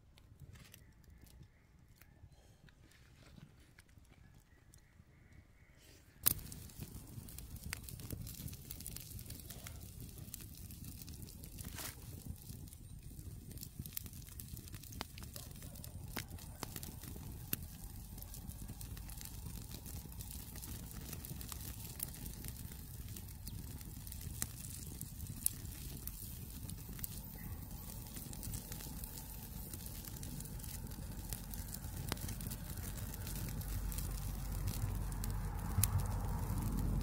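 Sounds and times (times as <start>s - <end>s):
fire popping: 0.0s - 2.1s, 6.2s - 37.0s
campfire crackling: 6.2s - 37.0s
low rumble: 16.0s - 37.0s.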